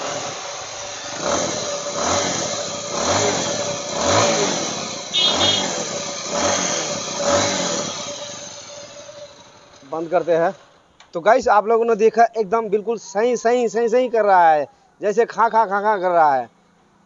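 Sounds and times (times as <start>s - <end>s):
motorcycle engine revving: 0.0s - 10.9s
engine rattling: 0.0s - 11.0s.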